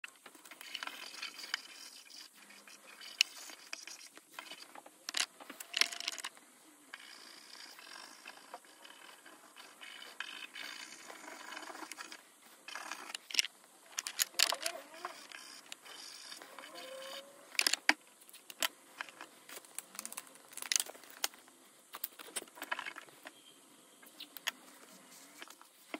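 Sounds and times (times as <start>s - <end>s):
pastel sticks scratching on paper: 0.4s - 4.7s, 6.9s - 21.3s, 24.0s - 25.9s.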